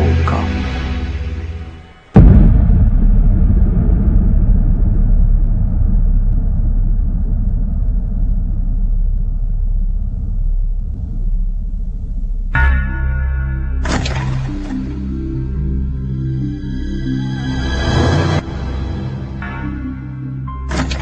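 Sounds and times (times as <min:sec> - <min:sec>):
deep boom: 0:00.0 - 0:15.8
low rumbling drone: 0:00.0 - 0:21.0.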